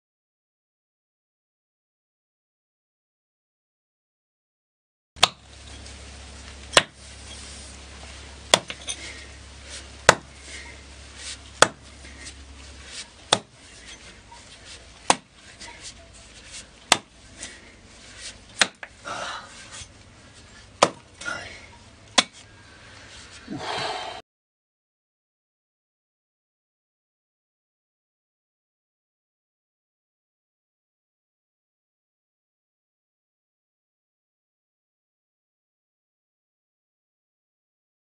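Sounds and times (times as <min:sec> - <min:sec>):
soil scraping and crumbling: 0:05.6 - 0:21.4
axe chopping into earth: 0:06.8 - 0:07.0, 0:08.5 - 0:08.8, 0:10.1 - 0:10.3, 0:11.6 - 0:11.8, 0:13.3 - 0:13.5, 0:15.1 - 0:15.3, 0:16.9 - 0:17.1, 0:18.6 - 0:18.9, 0:20.8 - 0:21.0.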